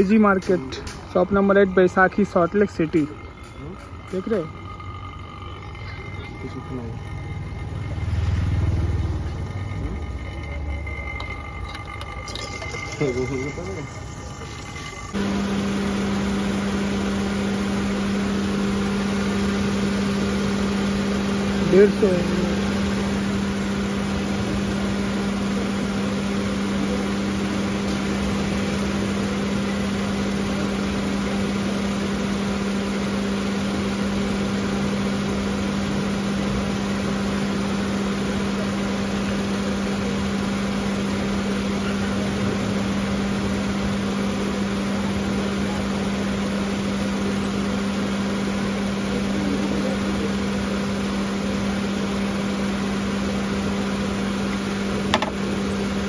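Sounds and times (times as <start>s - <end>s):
car engine idling: 0.0s - 29.6s.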